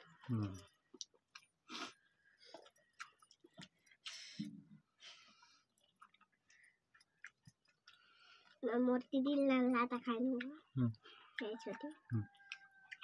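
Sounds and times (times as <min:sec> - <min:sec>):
soft chewing: 0:00.0 - 0:13.0.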